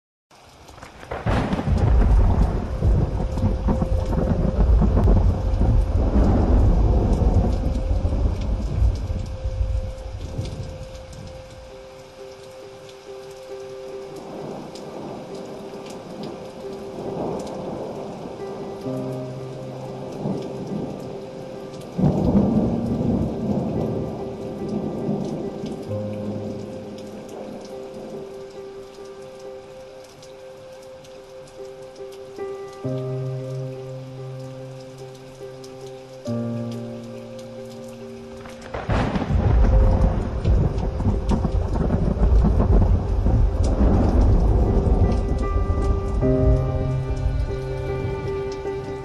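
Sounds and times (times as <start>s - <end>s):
rain falling: 0.3s - 49.0s
deep rumble of thunder: 0.8s - 11.8s, 16.1s - 28.2s, 38.4s - 49.0s.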